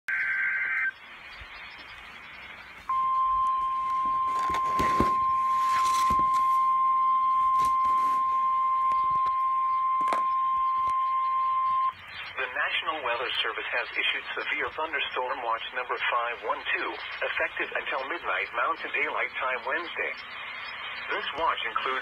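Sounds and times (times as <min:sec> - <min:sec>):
steady warning alarm tone: 0:02.9 - 0:13.6.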